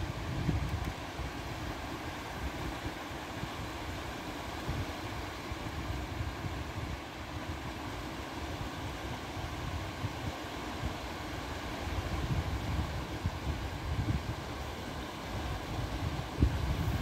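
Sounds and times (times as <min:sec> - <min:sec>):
wind buffeting microphone: 0:12.1 - 0:14.6, 0:15.7 - 0:17.0.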